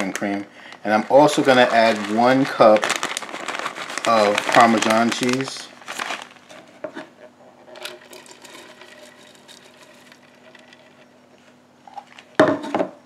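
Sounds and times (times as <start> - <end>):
cheese rustling: 0.0 - 6.9
faint steady hum: 0.0 - 13.0
container clatter: 7.7 - 11.1.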